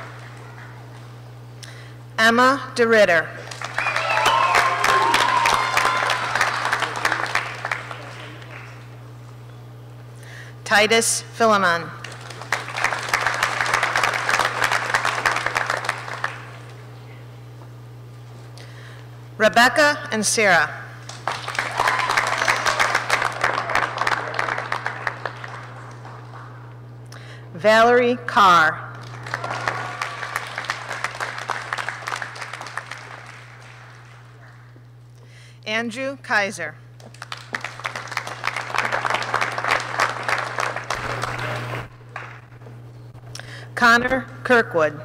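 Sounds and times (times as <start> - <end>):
audience applauding: 3.4 - 9.0, 12.0 - 16.8, 21.1 - 26.8, 29.0 - 34.8, 37.0 - 42.6.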